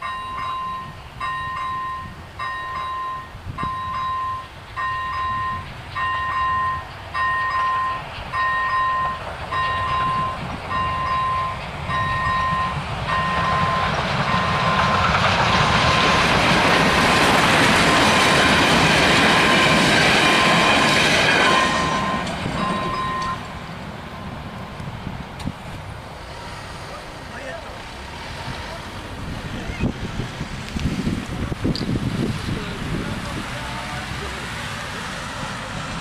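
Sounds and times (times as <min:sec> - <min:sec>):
level crossing warning bells: 0:00.0 - 0:15.2, 0:16.8 - 0:24.4
train rolling past: 0:00.0 - 0:36.0.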